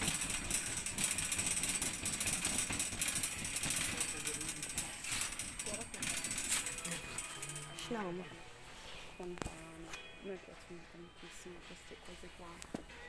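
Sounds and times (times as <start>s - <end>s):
shopping cart rattling on tiles: 0.0s - 8.2s.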